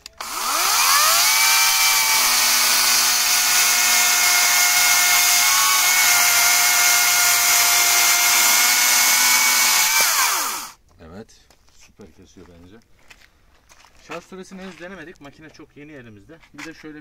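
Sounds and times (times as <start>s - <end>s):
chainsaw whine cutting timber: 0.0s - 10.8s.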